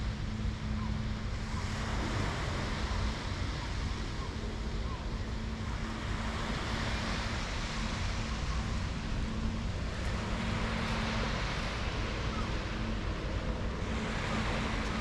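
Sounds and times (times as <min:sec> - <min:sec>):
low steady hum: 0:00.0 - 0:15.0
surf: 0:00.0 - 0:15.0
wind: 0:00.0 - 0:15.0.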